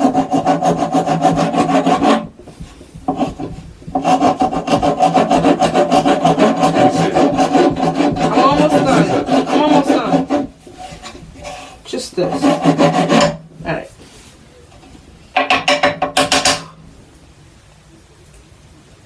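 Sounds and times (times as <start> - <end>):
band saw cutting wood: 0.0 - 2.3, 3.1 - 13.4.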